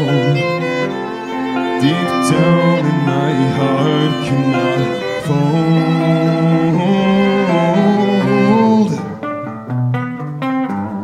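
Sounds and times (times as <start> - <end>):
person singing long note: 0.0 - 1.1, 1.7 - 9.2
bowed strings: 0.0 - 10.4
acoustic guitar strumming: 0.0 - 11.0.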